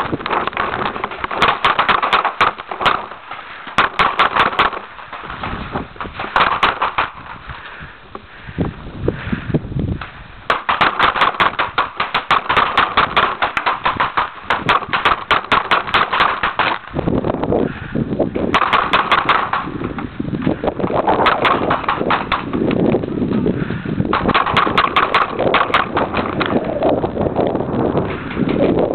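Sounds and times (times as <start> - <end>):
paintball markers firing rapidly: 0.0 - 7.4, 10.5 - 16.9, 18.5 - 20.1, 21.0 - 22.8, 24.1 - 26.9.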